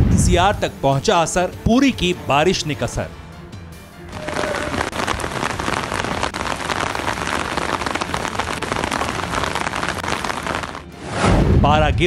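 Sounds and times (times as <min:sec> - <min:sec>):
heavy rain on pavement: 0:04.1 - 0:10.9.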